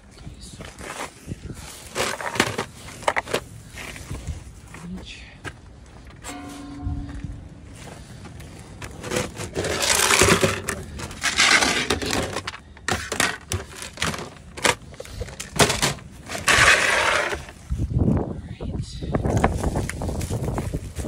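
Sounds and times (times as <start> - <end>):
objects clattering against plastic tubs: 1.7 - 4.1, 8.8 - 17.6.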